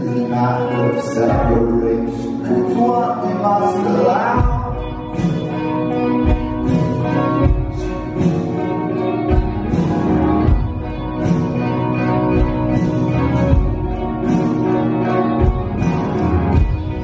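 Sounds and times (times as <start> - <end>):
person singing: 0.0 - 10.6
sustained keyboard chords: 0.0 - 17.0
low drum beat: 4.4 - 5.4.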